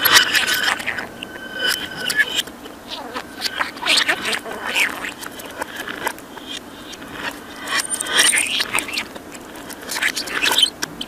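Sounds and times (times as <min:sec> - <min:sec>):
thin high whistle: 0:00.0 - 0:04.9
reversed budgerigar chatter: 0:00.0 - 0:11.0.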